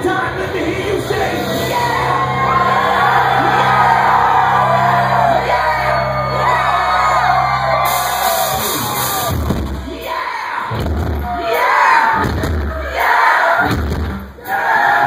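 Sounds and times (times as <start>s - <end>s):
live rock band: 0.0s - 14.6s
crowd yelling and singing: 0.0s - 15.0s
low bass note: 0.8s - 9.0s.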